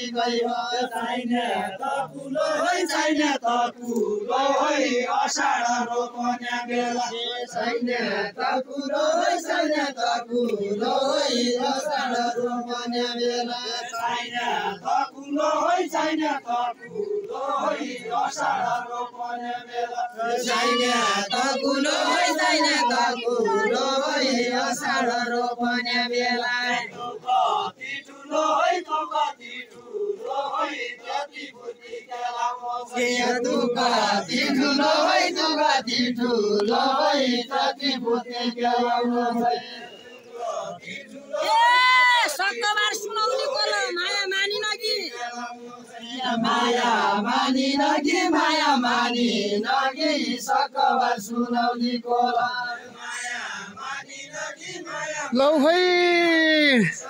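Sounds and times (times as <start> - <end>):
group singing folk song: 0.0 - 55.8.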